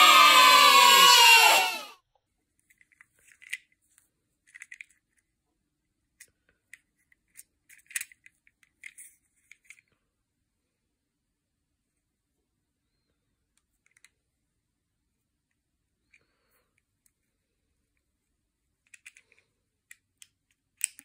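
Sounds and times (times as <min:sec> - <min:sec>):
plastic toy car clicking: 0:02.6 - 0:03.8, 0:04.4 - 0:05.2, 0:06.2 - 0:09.9, 0:13.7 - 0:14.2, 0:18.8 - 0:21.0.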